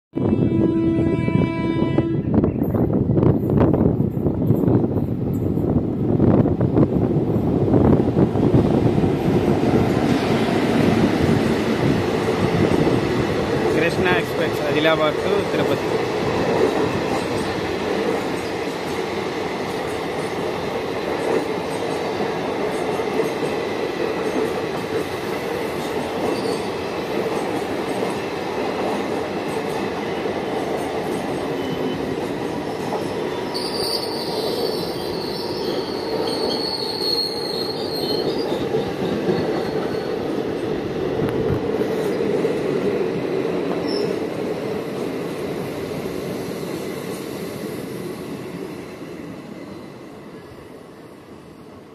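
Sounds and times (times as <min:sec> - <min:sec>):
train wheels rumbling on rails: 0:02.4 - 0:50.5
high wheel squeal: 0:26.3 - 0:26.8, 0:33.3 - 0:40.2.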